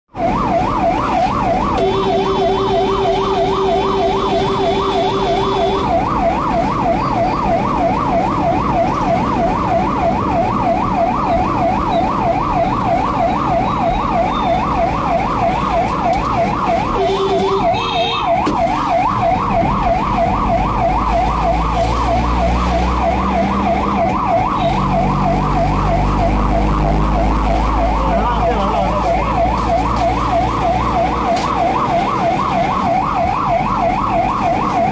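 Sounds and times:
ambulance siren warbling: 0:00.1 - 0:34.9
steady horn tone: 0:01.8 - 0:05.9, 0:17.0 - 0:18.1.

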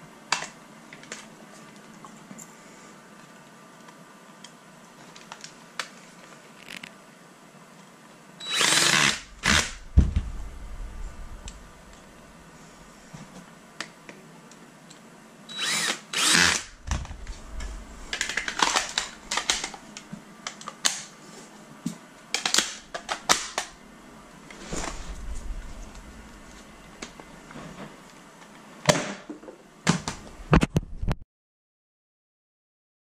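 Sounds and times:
cordless drill whirring: 0:08.4 - 0:09.9, 0:15.5 - 0:17.3.

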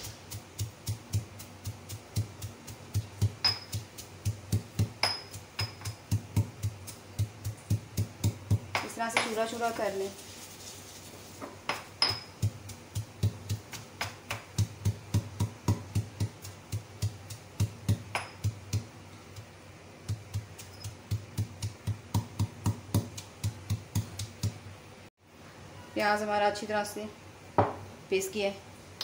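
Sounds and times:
pestle pounding in stone mortar: 0:00.0 - 0:09.8, 0:11.4 - 0:24.7.

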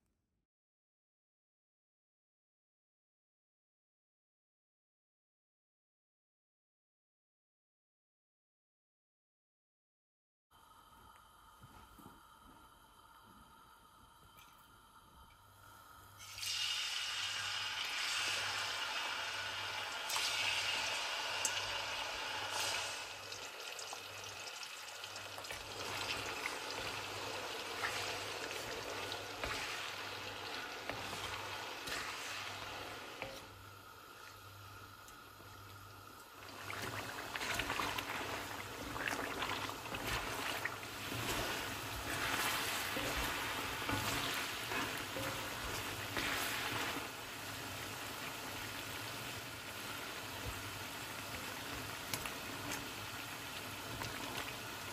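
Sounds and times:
chicken sizzling in hot oil: 0:16.1 - 0:54.9.

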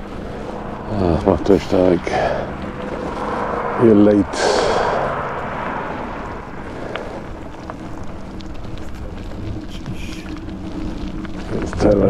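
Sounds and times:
e-bike rolling noise: 0:00.0 - 0:12.0
wind noise on microphone: 0:00.0 - 0:12.0.

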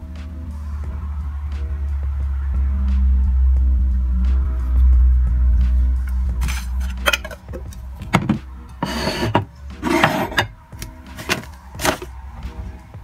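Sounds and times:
packaging scraping and rustling: 0:06.4 - 0:07.4, 0:11.1 - 0:12.1
crockery knocks and clicks: 0:08.1 - 0:10.5.

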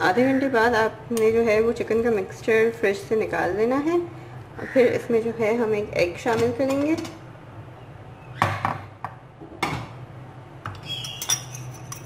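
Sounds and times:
glass bowls and spoon clinking: 0:10.8 - 0:12.0
ringing glass clink: 0:11.0 - 0:12.0.

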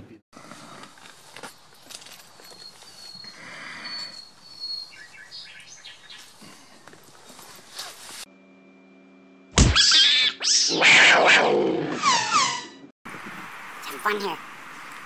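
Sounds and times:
rustling: 0:00.4 - 0:03.4, 0:06.1 - 0:08.3
faint bird chirps: 0:02.4 - 0:06.4.

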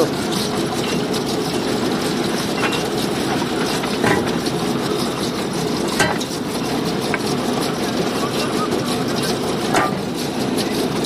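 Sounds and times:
drilling rig engine running: 0:00.0 - 0:11.0
drill pipe knocks: 0:03.6 - 0:04.5, 0:05.9 - 0:06.4.

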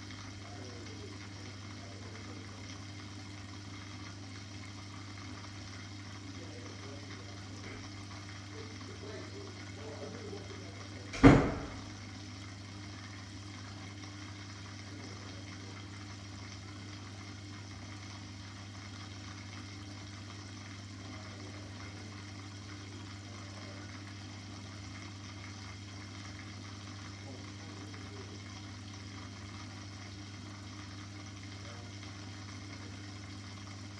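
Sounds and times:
aquarium filter humming: 0:00.0 - 0:33.9
sharp knock: 0:11.2 - 0:11.7.

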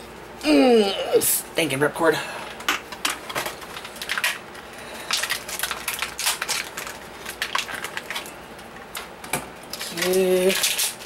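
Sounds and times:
packaging crinkling: 0:03.1 - 0:11.0.

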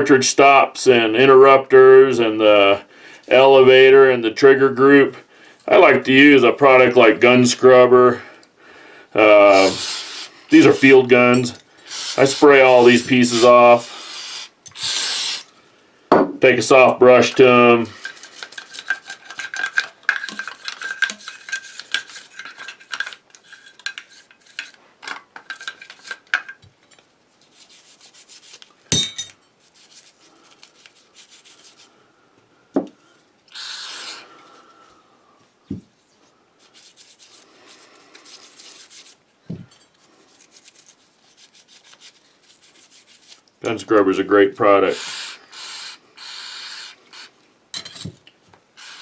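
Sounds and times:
brush scrubbing metal parts: 0:09.5 - 0:14.0, 0:18.0 - 0:24.8, 0:25.5 - 0:26.4, 0:27.4 - 0:31.9, 0:36.6 - 0:43.5
brief hiss: 0:13.4 - 0:15.5.

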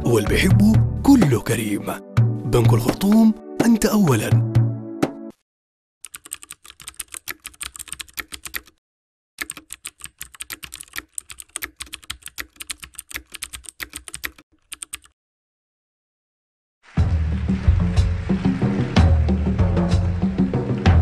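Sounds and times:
keyboard typing: 0:06.0 - 0:08.8, 0:09.4 - 0:15.2.

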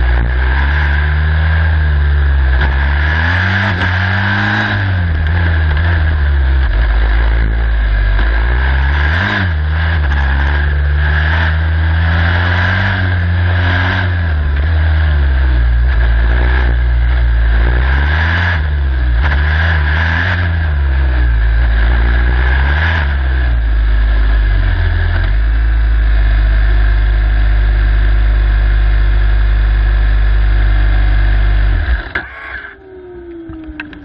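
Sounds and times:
race car engine revving: 0:00.0 - 0:34.0
whine spinning down: 0:31.8 - 0:34.0
clicks: 0:31.9 - 0:34.0.

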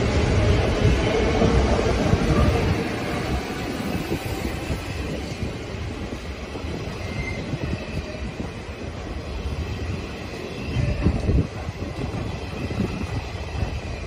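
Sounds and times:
freight train rumbling past: 0:00.0 - 0:14.0
wheel squeal: 0:06.7 - 0:08.5.

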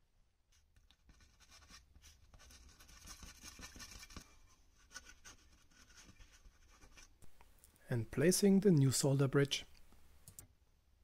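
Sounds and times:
brush scrubbing circuit board: 0:00.9 - 0:07.1.

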